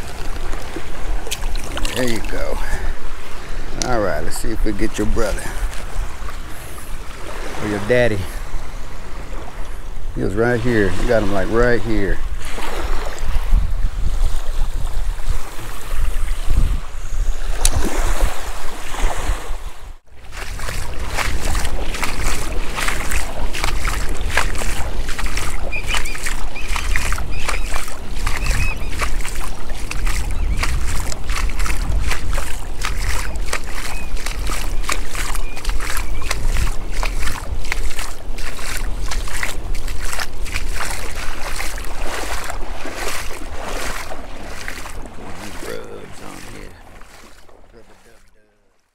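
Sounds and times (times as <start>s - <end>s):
wind rumbling on microphone: 0.0s - 48.1s
waves slapping kayak hull: 0.0s - 48.5s
faint birds calling: 25.3s - 31.7s, 33.0s - 37.1s.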